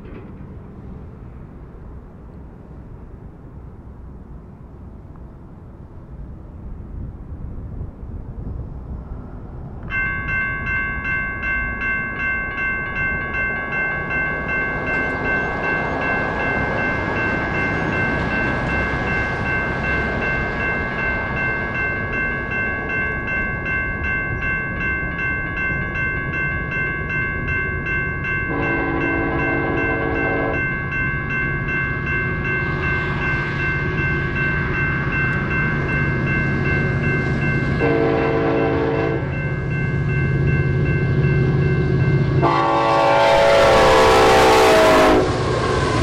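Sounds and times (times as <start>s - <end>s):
wind: 0.0s - 46.0s
railroad crossing bell ringing: 9.8s - 46.0s
train horn: 28.5s - 30.7s, 37.8s - 39.3s, 42.4s - 45.7s.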